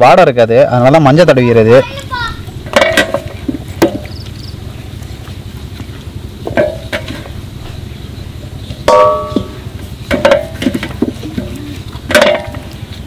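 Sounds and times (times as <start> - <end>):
steady low rumble: 1.8 - 13.0
metal plate clanking: 2.6 - 4.0, 6.4 - 7.4, 8.8 - 12.8.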